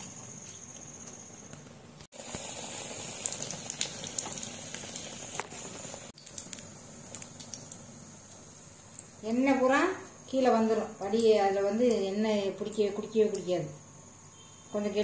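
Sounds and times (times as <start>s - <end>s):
oil sizzling with crackling pops: 0.0s - 14.4s
faint high whine: 8.9s - 15.0s.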